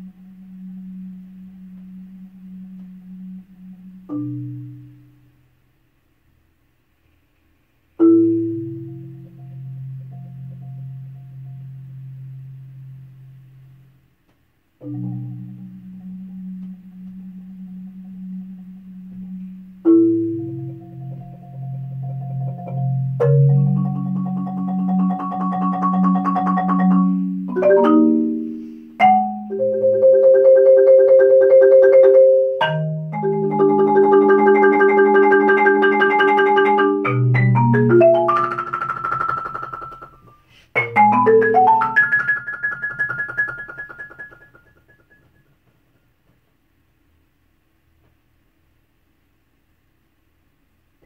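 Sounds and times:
marimba rolls and strokes: 8.0s - 13.1s, 14.8s - 45.8s.

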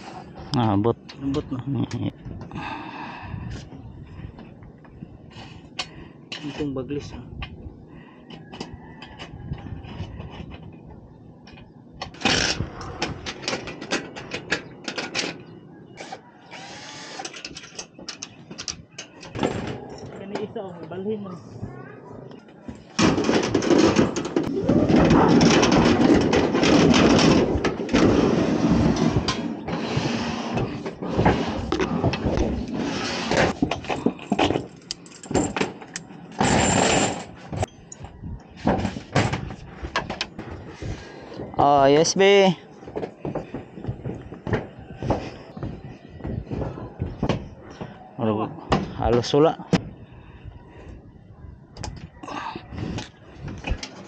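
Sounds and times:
scraping on metal roof: 22.8s - 35.8s
metal chain clinking and rattling: 33.8s - 37.5s.

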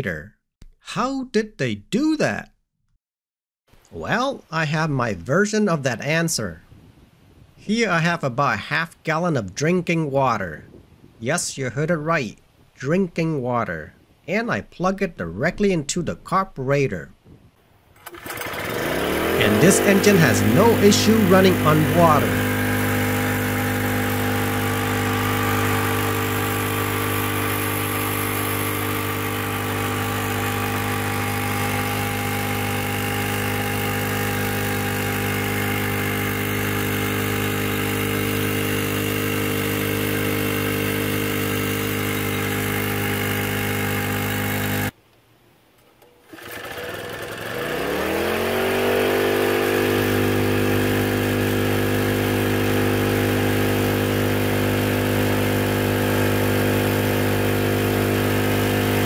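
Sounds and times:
generator engine running: 18.0s - 44.9s, 46.2s - 59.0s.

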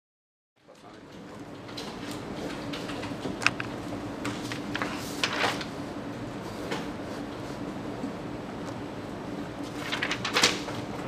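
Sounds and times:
papers shifting: 1.7s - 5.8s, 9.6s - 10.9s.

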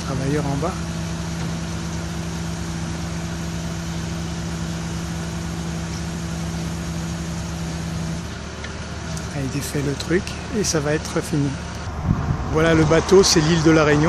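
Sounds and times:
vehicle engine running: 0.0s - 14.0s.

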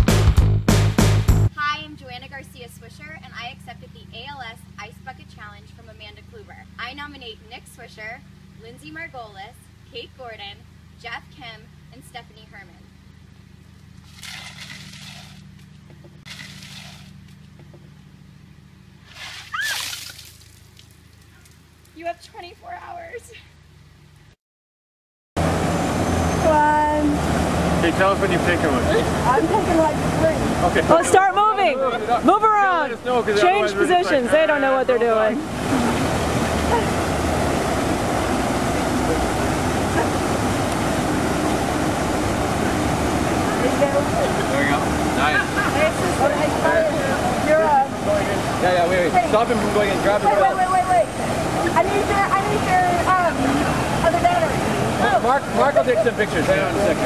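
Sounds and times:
ice water sloshing into bucket: 14.0s - 15.4s, 16.3s - 17.2s, 19.1s - 20.9s
water splashing over person: 14.0s - 15.4s, 16.3s - 17.1s, 19.0s - 20.9s
fountain water splashing: 14.0s - 15.5s, 16.2s - 17.2s, 19.0s - 22.0s, 26.5s - 57.0s
person crying out: 19.5s - 19.9s
low hum: 25.4s - 57.0s.

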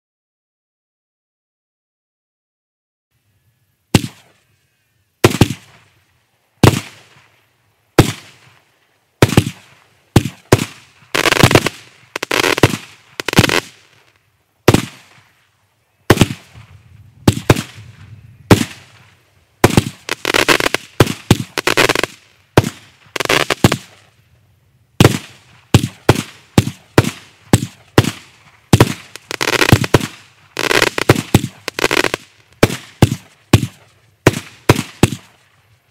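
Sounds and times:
firework bangs: 3.9s - 4.3s, 5.2s - 6.0s, 6.6s - 7.3s, 8.0s - 15.4s, 16.1s - 24.2s, 25.0s - 35.4s.

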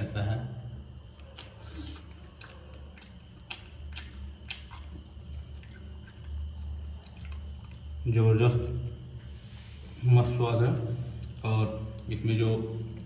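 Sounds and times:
faint low hum: 0.0s - 13.0s
person chewing crunchy food: 1.0s - 8.0s.

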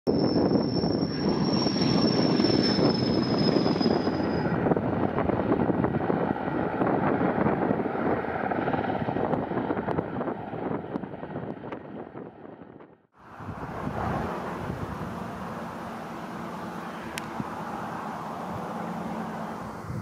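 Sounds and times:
high turbine whine: 0.1s - 8.7s, 13.2s - 20.0s
helicopter rotor noise: 0.1s - 12.6s, 13.5s - 20.0s.

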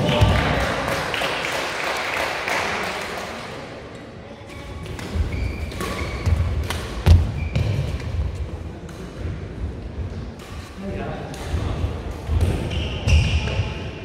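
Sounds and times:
rackets hitting shuttlecock: 4.8s - 8.2s
shoe squeaks on floor: 5.1s - 6.5s, 7.2s - 8.0s, 12.7s - 13.8s.

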